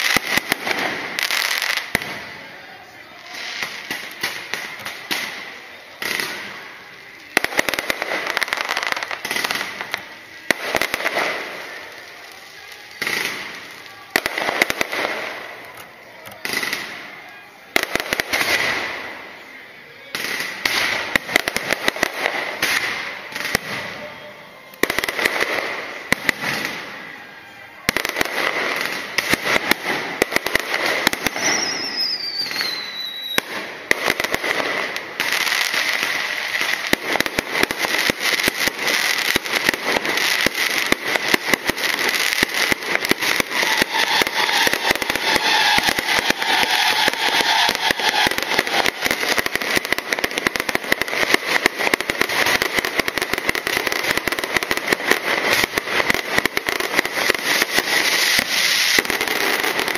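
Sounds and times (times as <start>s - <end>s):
firework whistle: 0.0s - 59.9s
fireworks bursting and crackling: 0.0s - 59.9s.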